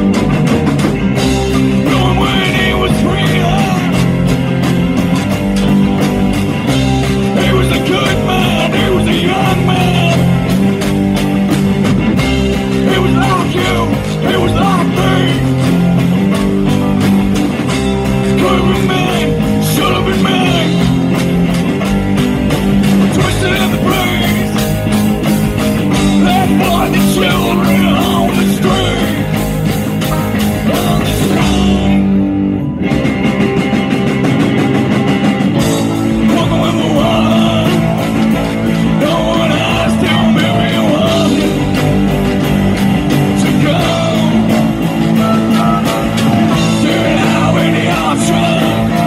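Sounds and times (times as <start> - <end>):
drums and cymbals: 0.0 - 49.0
guitars: 0.0 - 49.0
upright bass: 0.0 - 49.0
person singing: 1.6 - 4.2, 7.3 - 10.4, 12.7 - 15.8, 18.3 - 21.1, 23.0 - 24.8, 25.9 - 32.2, 36.0 - 42.1, 43.1 - 49.0.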